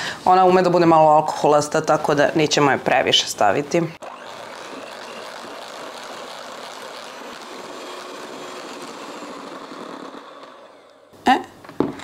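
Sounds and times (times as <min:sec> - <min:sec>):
electric mixer whipping cream: 0:04.0 - 0:11.2.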